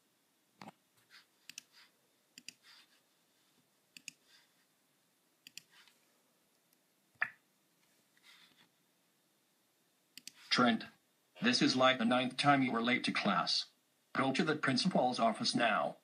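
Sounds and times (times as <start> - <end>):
computer mouse clicks: 1.4 - 1.8, 2.4 - 2.7, 4.0 - 4.2, 5.4 - 5.9, 10.2 - 10.4.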